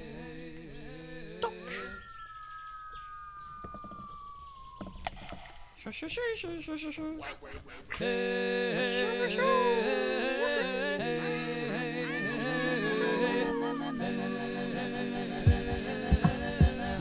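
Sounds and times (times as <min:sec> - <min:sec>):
voice-like gliding melody: 0:09.0 - 0:15.9.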